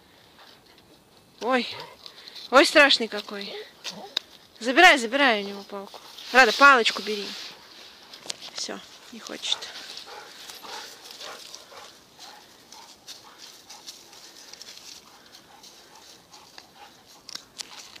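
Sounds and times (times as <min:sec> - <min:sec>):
leaves rustling: 0:00.0 - 0:18.0
dog paws scuffling: 0:00.4 - 0:18.0.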